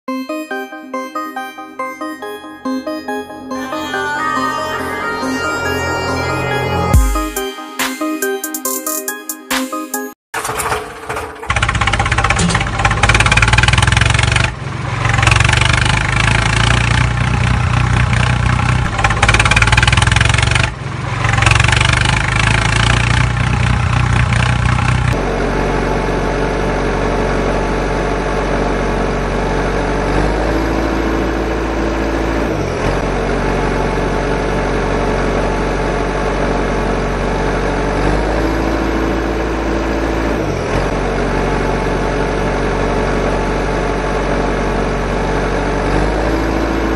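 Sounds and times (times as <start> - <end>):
engine whine: 0.5 - 7.7, 10.4 - 46.9
diesel engine running: 10.4 - 46.9.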